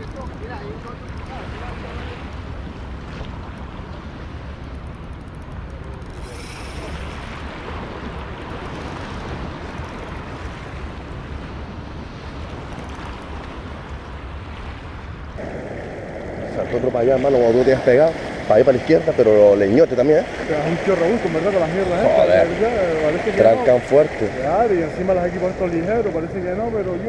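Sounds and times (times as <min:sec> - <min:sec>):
wind buffeting microphone: 0:00.0 - 0:27.0
brief hiss: 0:06.2 - 0:07.2.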